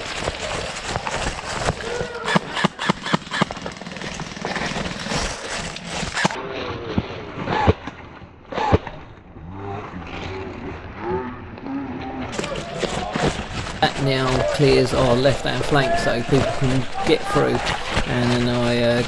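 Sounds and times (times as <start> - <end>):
airsoft rifle shots: 1.7 - 4.7.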